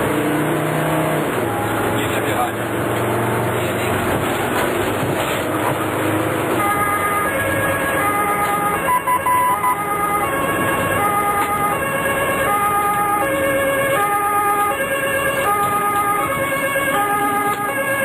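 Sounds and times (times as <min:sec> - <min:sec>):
engine and road noise: 0:00.0 - 0:18.0
two-tone emergency siren: 0:05.0 - 0:18.0.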